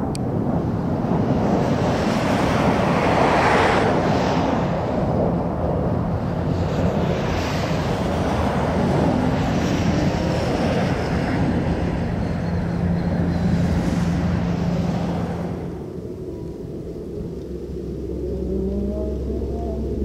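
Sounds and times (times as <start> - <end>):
jet passing overhead: 0.0 - 20.0.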